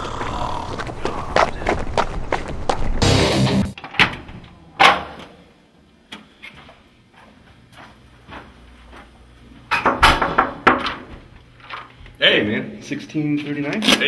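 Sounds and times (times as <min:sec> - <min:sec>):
door banging shut: 0:09.8 - 0:11.0.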